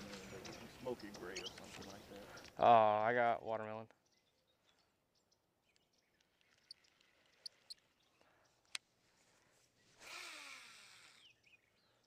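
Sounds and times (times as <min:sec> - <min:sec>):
high bird chirps: 0:00.0 - 0:02.7, 0:11.1 - 0:12.0
reel spool whirring: 0:10.0 - 0:11.3.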